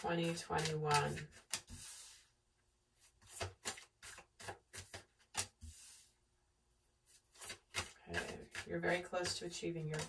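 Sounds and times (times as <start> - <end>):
cards sliding across a table: 0.6 - 2.4, 3.0 - 6.2.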